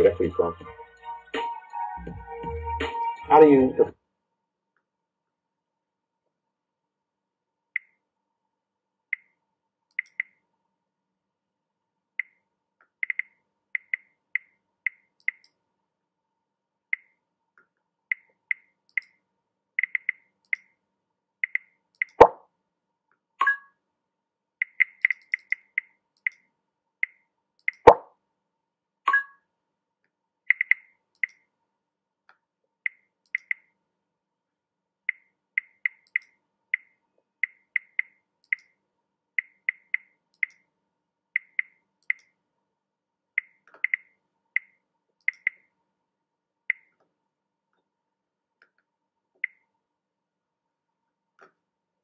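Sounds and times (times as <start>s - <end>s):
mouse button clicking: 9.9s - 10.4s, 13.0s - 15.6s, 19.8s - 20.7s, 21.4s - 22.4s, 24.6s - 26.4s, 27.0s - 28.0s, 30.5s - 31.4s, 32.9s - 33.7s, 35.1s - 38.7s, 39.4s - 40.6s, 41.4s - 42.3s, 43.4s - 45.6s.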